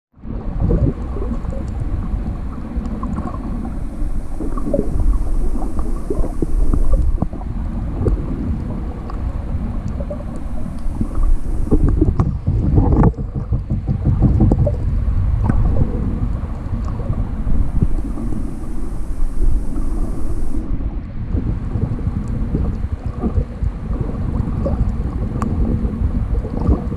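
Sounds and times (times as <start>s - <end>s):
muffled underwater rumble: 0.1s - 26.9s
small clicks and crackles: 1.0s - 20.7s, 22.2s - 23.5s, 24.6s - 26.9s
water sloshing: 1.0s - 20.7s.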